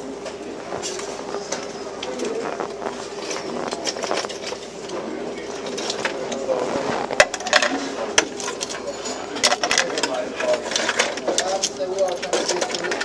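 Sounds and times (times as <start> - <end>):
indistinct voices: 0.0 - 13.0
steady hum: 0.0 - 13.0
dishes and cutlery clinking: 7.2 - 13.0.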